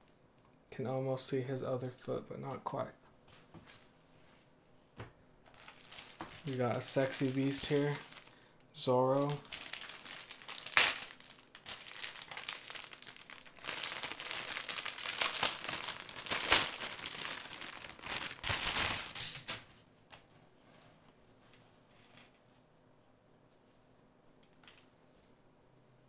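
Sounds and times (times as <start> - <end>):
plastic packaging crinkling: 5.5 - 8.5, 9.1 - 19.7.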